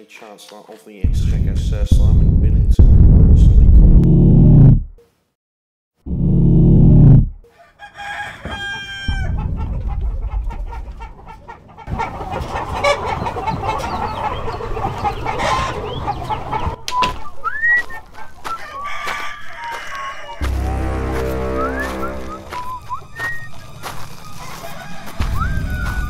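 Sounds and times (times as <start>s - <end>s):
rooster crowing: 7.4s - 9.4s, 18.4s - 26.0s
many chickens clucking: 7.5s - 26.0s
short loud low sound: 20.4s - 22.6s.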